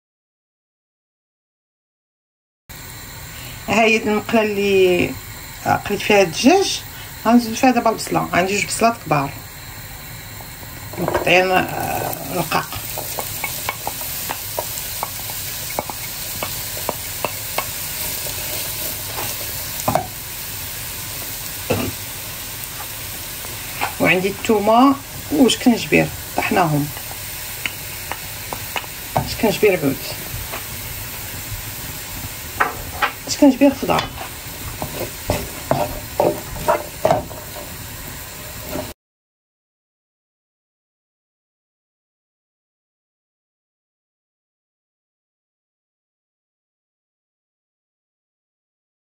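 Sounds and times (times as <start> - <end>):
onions sizzling in oil: 2.7 - 39.0
spoon scraping pan: 11.0 - 20.2, 21.2 - 24.2, 32.5 - 38.9
utensil stirring clicks: 12.6 - 20.0.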